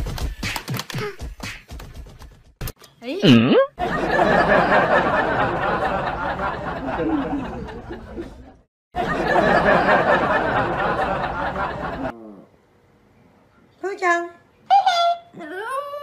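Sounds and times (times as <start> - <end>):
people laughing and chattering: 3.8 - 12.2.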